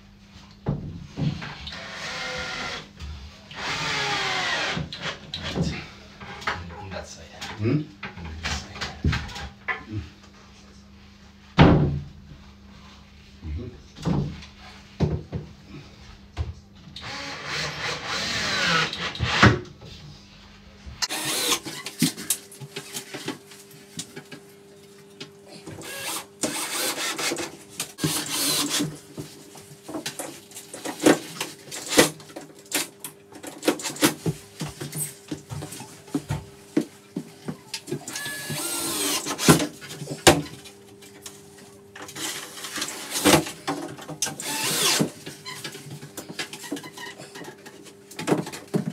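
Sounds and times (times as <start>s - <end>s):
cordless drill whining: 17.0s - 19.1s, 21.1s - 21.8s, 25.8s - 27.3s, 28.0s - 28.8s, 38.1s - 39.6s, 44.4s - 45.1s.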